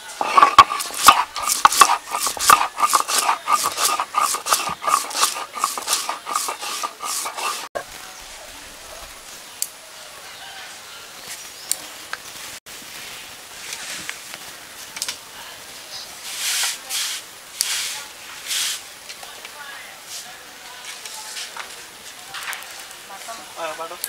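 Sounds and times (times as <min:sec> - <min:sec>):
stone roller crushing seeds: 0:00.0 - 0:07.8.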